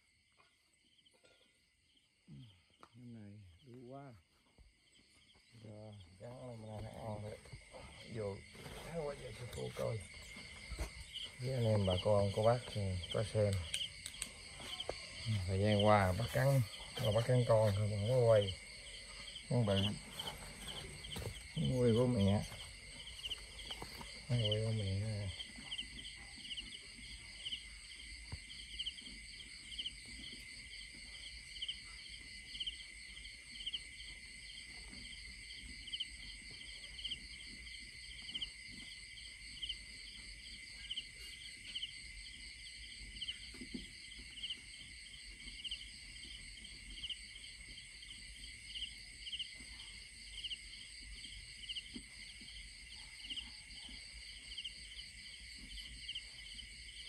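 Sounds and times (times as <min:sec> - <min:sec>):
insects chirring in chorus: 0:00.0 - 0:57.0.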